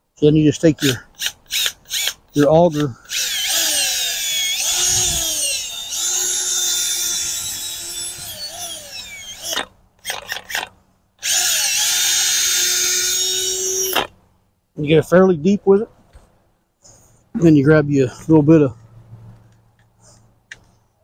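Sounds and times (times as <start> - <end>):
auger boring into soil: 0.8 - 14.1
cordless drill motor whining: 1.2 - 2.2, 2.8 - 14.1.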